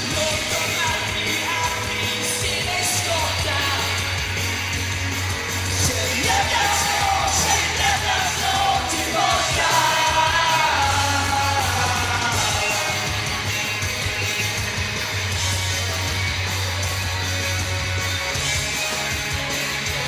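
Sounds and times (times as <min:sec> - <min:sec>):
lead vocalist singing: 0:00.0 - 0:04.0, 0:05.6 - 0:13.7
live rock band: 0:00.0 - 0:20.0.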